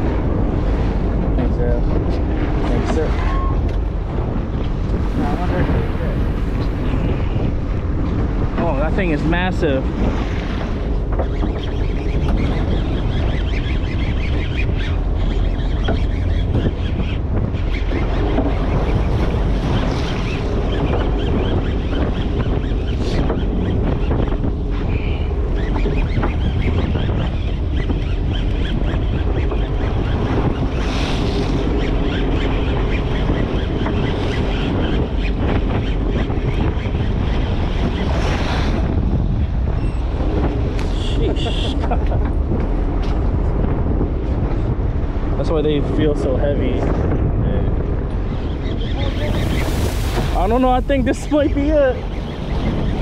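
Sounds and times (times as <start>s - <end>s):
water rushing along boat hull: 0.0s - 46.2s, 46.9s - 53.0s
wind buffeting microphone: 0.0s - 53.0s
water splashing along boat hull: 48.4s - 53.0s.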